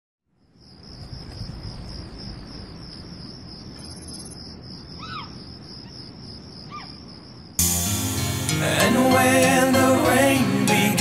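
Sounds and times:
insects chirring: 0:00.3 - 0:08.0
high insect trill: 0:00.4 - 0:08.6.

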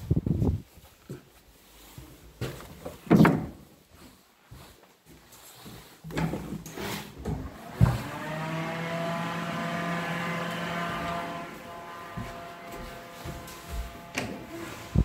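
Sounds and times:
electric fan motor humming: 0:07.2 - 0:15.0.

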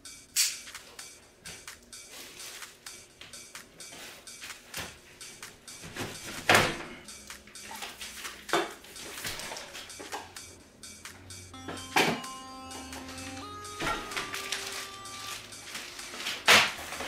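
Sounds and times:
plastic wrapping rustling: 0:13.0 - 0:17.0.

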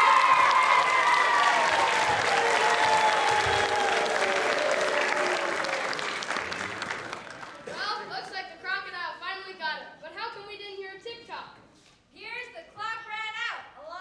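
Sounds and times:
people cheering: 0:00.0 - 0:07.6
audience applause: 0:00.0 - 0:07.8.

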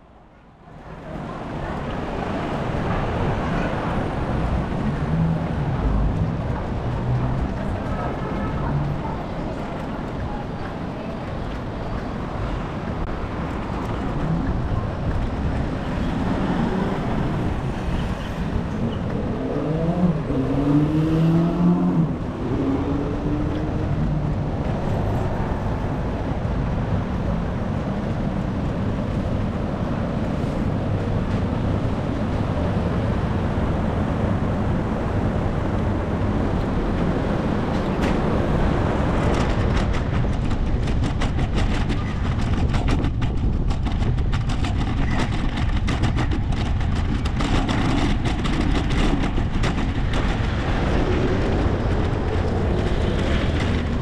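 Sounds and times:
road traffic rumble: 0:00.0 - 0:54.0
wind: 0:00.0 - 0:54.0
fast clicks and rattles: 0:39.2 - 0:54.0.

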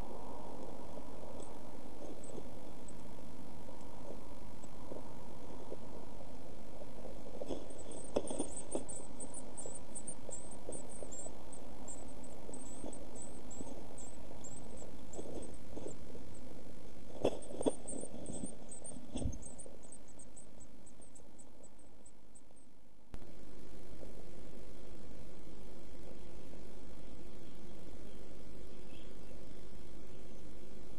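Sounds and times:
steady hiss: 0:00.0 - 0:30.9
bird moving in nest box: 0:07.3 - 0:09.7, 0:17.1 - 0:19.5.

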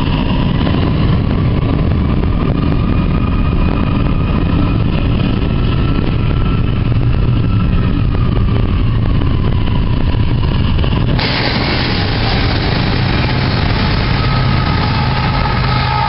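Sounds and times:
train wheels rumbling on rail: 0:00.0 - 0:16.0
loud hiss: 0:11.2 - 0:16.0.

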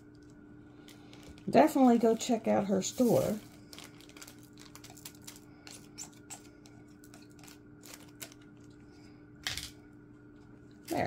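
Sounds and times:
steady low hum: 0:00.0 - 0:11.0
plastic bags handled: 0:00.8 - 0:08.8.

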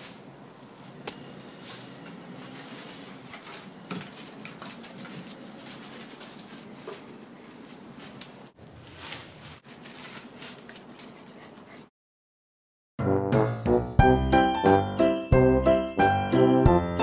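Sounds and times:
dog paws pattering on wood: 0:00.8 - 0:11.9.

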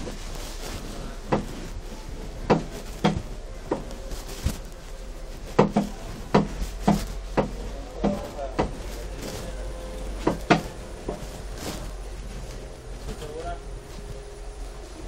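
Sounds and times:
steady low hum: 0:00.0 - 0:15.0
sharp knocks: 0:05.6 - 0:08.8.

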